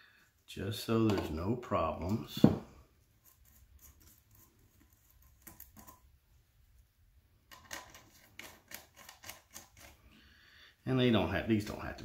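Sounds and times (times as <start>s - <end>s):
faint clicks and metallic taps: 3.2s - 6.1s.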